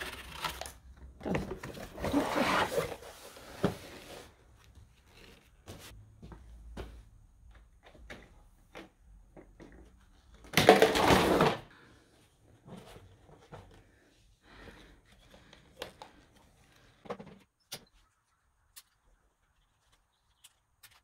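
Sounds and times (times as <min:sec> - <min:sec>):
plastic tiles clattering on concrete: 0:08.1 - 0:11.6.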